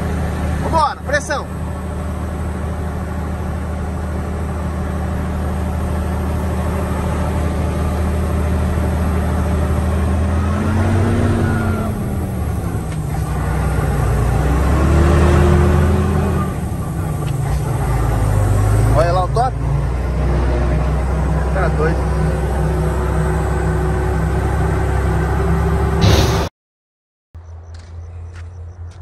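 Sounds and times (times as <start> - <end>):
truck diesel engine pulling: 0.0 - 26.5.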